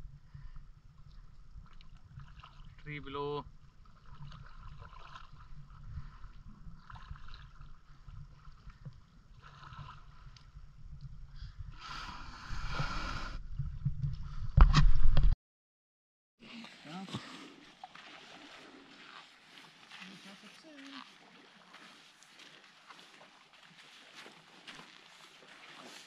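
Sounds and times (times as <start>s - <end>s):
water swishing at canoe bow: 0.0s - 14.7s, 16.4s - 26.0s
wind rumbling on microphone: 3.5s - 15.4s.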